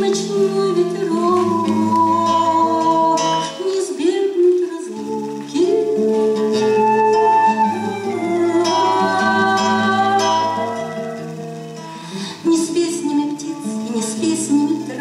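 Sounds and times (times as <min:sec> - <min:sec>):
plucked acoustic guitar: 0:00.0 - 0:15.0
folk flute melody: 0:05.1 - 0:11.6.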